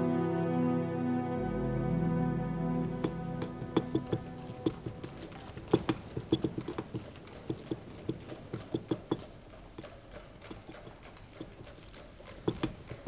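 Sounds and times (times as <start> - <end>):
light clicks and taps: 2.9 - 13.0.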